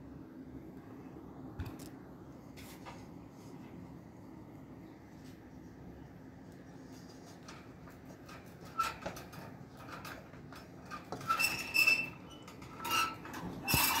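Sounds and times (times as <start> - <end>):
scraping in metal bowl: 11.1 - 14.0.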